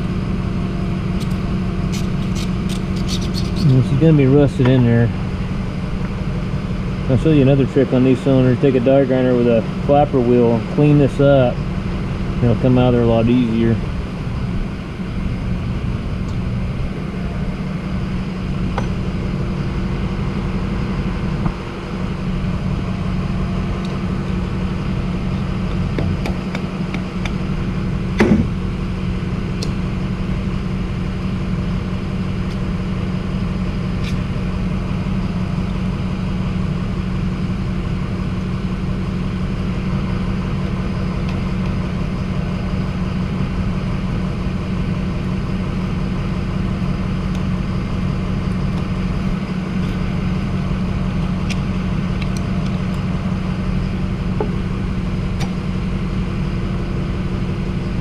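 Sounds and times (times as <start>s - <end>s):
die grinder grinding metal: 1.2s - 4.0s.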